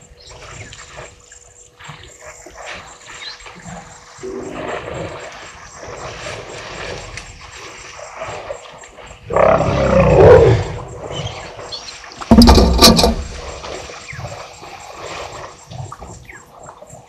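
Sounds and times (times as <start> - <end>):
sounds of the herd at water: 0.0 - 17.0
elephant roaring: 9.3 - 10.9.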